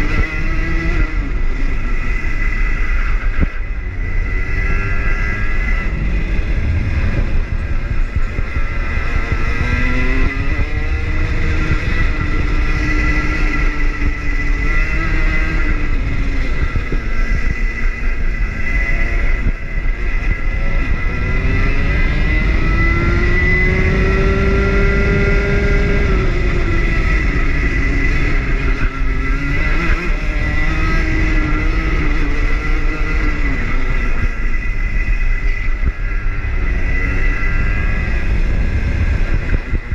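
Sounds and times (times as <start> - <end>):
kart engine revving: 0.0 - 39.9
steady high whine: 0.0 - 39.9
low engine rumble: 1.1 - 21.8.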